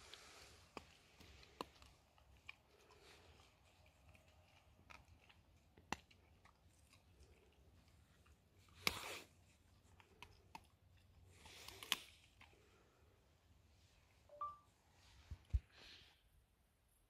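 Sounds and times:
dog chewing stick: 0:00.0 - 0:12.8.

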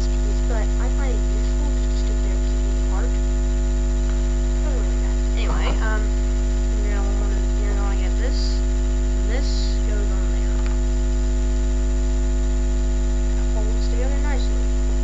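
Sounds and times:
electrical mains hum: 0:00.0 - 0:15.0
faint voice: 0:04.6 - 0:06.2.

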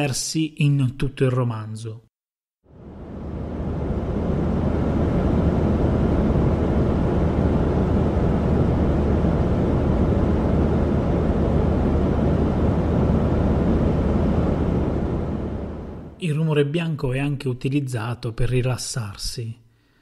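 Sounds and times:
low hum: 0:02.7 - 0:16.2
low rumbling white noise: 0:02.7 - 0:16.6.

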